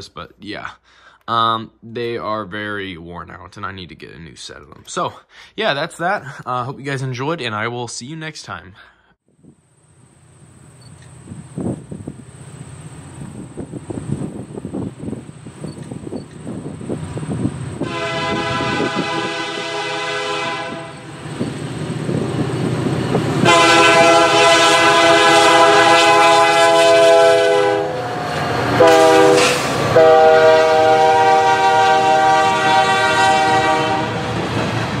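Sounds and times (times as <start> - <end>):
locomotive engine rumble: 9.4 - 35.0
locomotive air horn blasts: 17.8 - 21.1, 23.4 - 28.2, 28.8 - 34.4.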